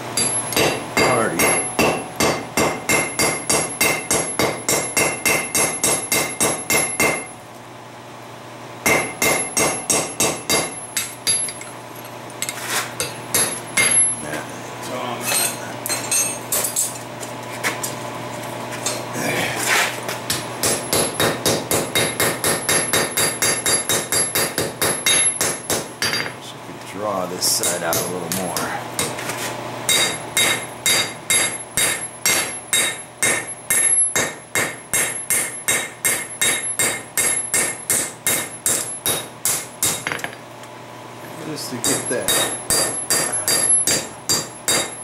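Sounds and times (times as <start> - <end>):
hammer striking metal on anvil: 0.2 - 7.4, 8.8 - 11.7, 13.0 - 14.2, 20.3 - 26.4, 27.5 - 29.2, 29.9 - 40.4, 41.8 - 45.0.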